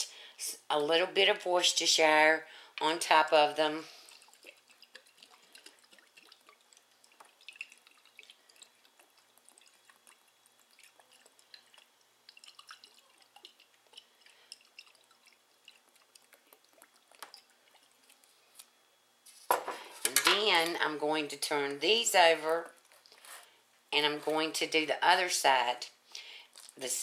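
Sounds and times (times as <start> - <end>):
sauce dripping from bottle: 4.0 - 18.3.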